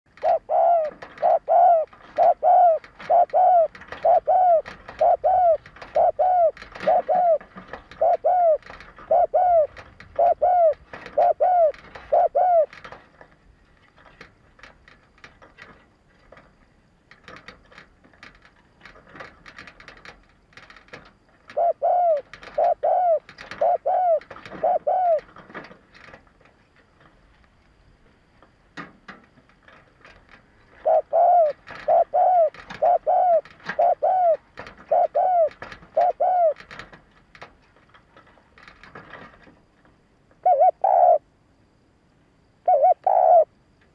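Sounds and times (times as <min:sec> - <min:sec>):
dove cooing: 0:00.1 - 0:12.9, 0:21.5 - 0:25.5, 0:30.8 - 0:36.9, 0:40.4 - 0:41.3, 0:42.6 - 0:43.6.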